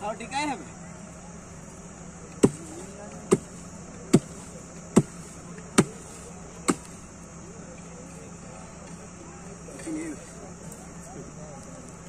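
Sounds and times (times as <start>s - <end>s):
heavy object thudding on ground: 2.4s - 7.0s.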